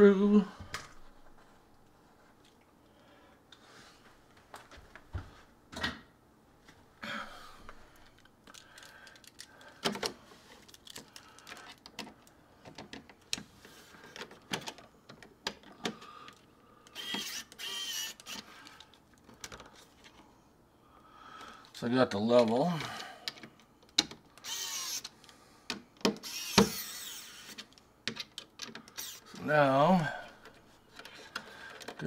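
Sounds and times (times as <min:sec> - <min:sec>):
electric screwdriver whirring: 0:16.9 - 0:18.4, 0:24.4 - 0:25.2, 0:26.1 - 0:27.6, 0:28.9 - 0:29.4.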